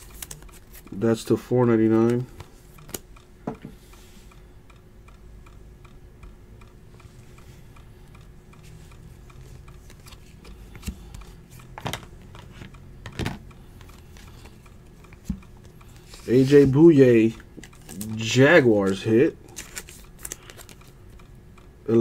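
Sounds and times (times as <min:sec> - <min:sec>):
faint steady ticking: 0:00.0 - 0:22.0
trading cards flipped by hand: 0:02.9 - 0:03.1, 0:09.8 - 0:12.7, 0:18.8 - 0:20.9.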